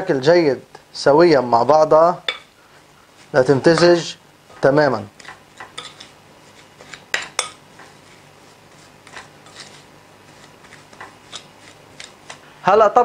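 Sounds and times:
hand kneading minced meat: 3.1s - 12.5s.

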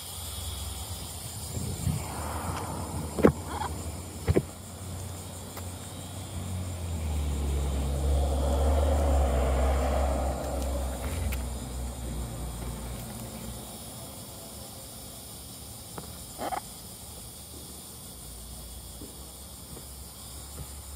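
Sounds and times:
road vehicle passing by: 0.2s - 14.6s.

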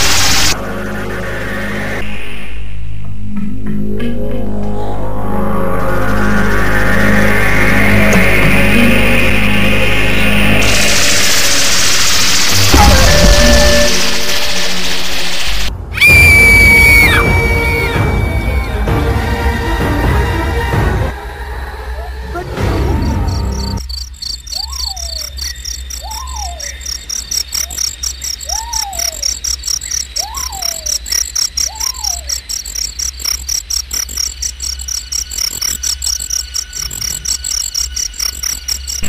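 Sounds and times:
crickets chirping: 10.1s - 17.6s, 22.8s - 39.0s
rising and falling calls: 23.0s - 33.5s.

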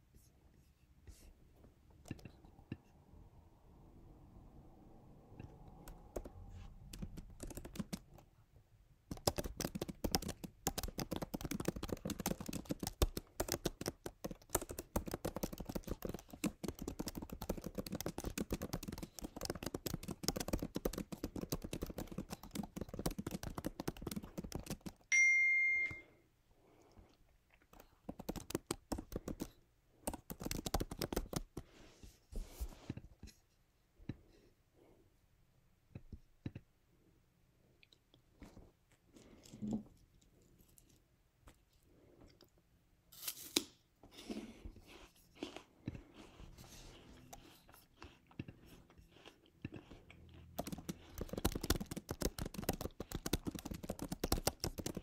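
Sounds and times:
typing on computer keyboard: 5.7s - 8.2s, 9.1s - 25.1s, 27.7s - 31.6s, 50.6s - 55.0s.

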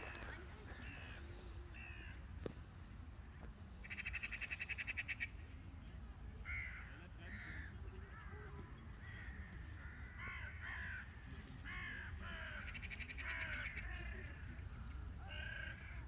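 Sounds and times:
crows cawing: 1.8s - 2.2s, 3.8s - 5.3s, 6.4s - 8.3s, 8.9s - 16.0s
crow rattling call: 9.0s - 11.1s, 11.7s - 14.5s.

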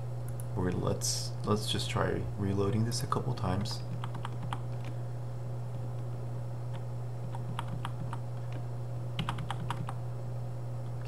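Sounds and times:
low electrical hum: 0.0s - 11.0s
keyboard keys tapping: 3.9s - 4.9s, 6.7s - 8.6s, 9.2s - 10.0s.

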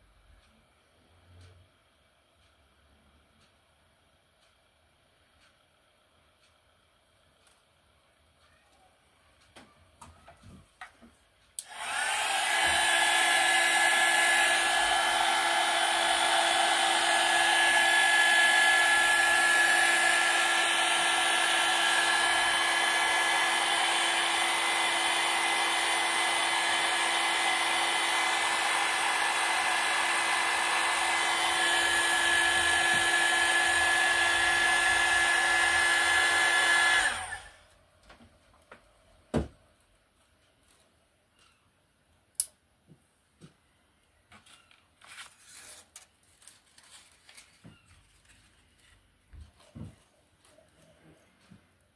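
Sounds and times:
hair dryer blowing: 11.6s - 37.7s.

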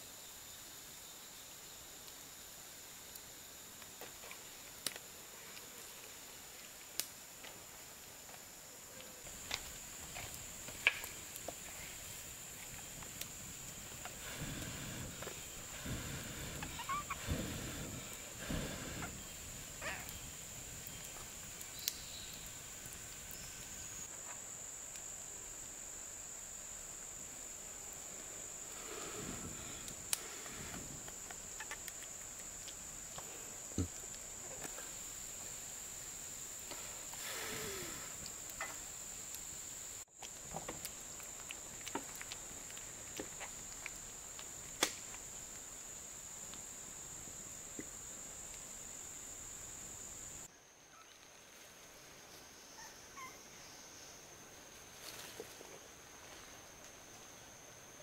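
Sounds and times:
forest insects droning: 0.0s - 58.0s.

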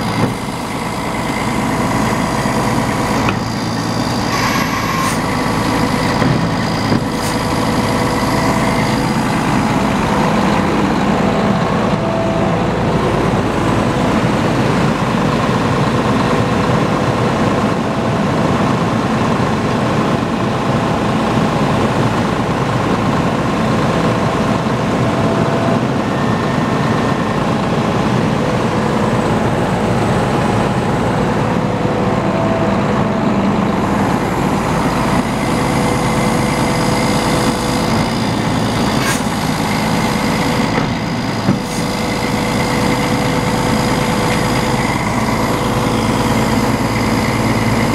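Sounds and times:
truck engine running: 0.0s - 47.9s
sharp knocks: 6.1s - 7.4s.

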